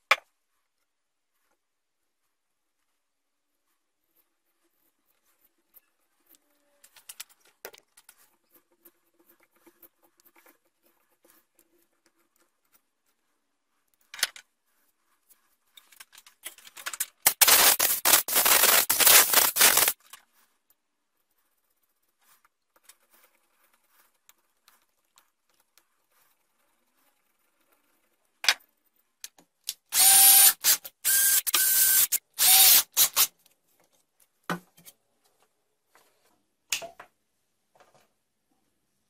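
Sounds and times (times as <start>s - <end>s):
loud harsh rasping noise: 17.3s - 20.0s.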